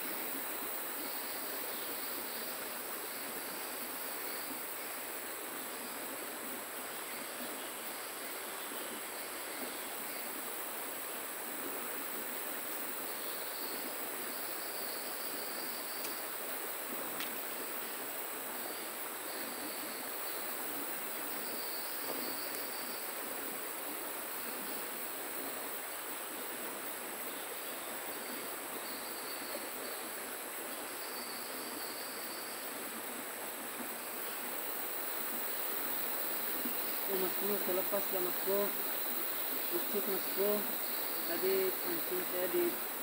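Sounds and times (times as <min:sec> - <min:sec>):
faint insect trill: 0:00.0 - 0:43.0
flowing river water: 0:00.0 - 0:43.0
high-pitched insect drone: 0:21.3 - 0:23.2, 0:34.8 - 0:43.0.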